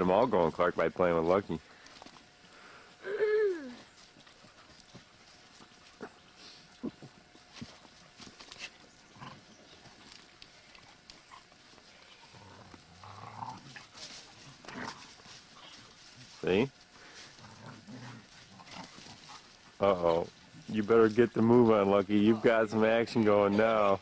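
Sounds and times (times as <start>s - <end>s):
paws rustling on dry leaves: 3.7s - 24.0s.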